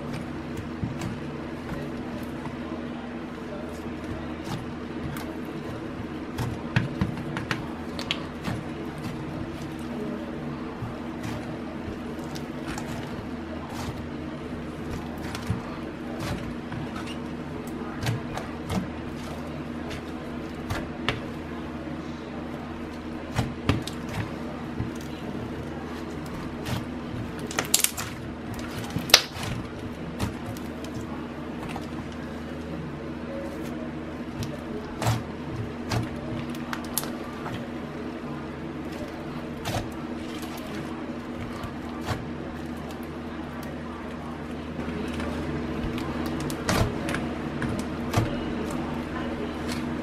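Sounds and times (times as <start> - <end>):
slime squelching: 0.0 - 50.0
sticky pops and crackles: 28.9 - 29.5.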